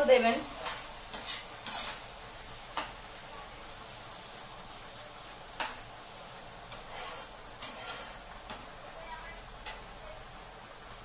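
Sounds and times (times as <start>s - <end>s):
hot oil sizzling: 0.0s - 11.0s
metal spatula scraping a pan: 0.1s - 3.0s, 6.7s - 8.8s.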